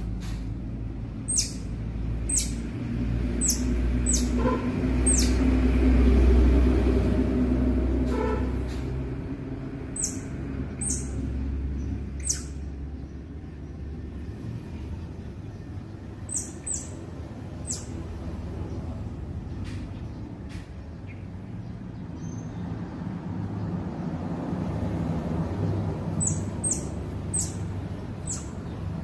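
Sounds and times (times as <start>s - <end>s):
baby squirrels squeaking: 0.0s - 5.6s, 9.8s - 13.2s, 16.1s - 18.2s, 26.1s - 29.0s.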